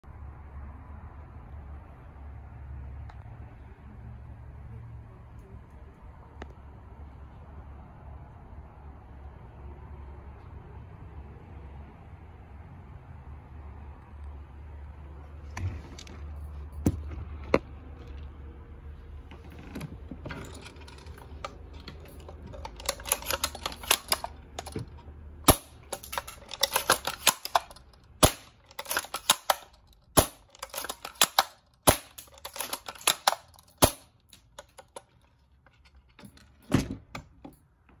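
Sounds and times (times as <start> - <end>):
quick rattling clicks: 20.4 - 35.2.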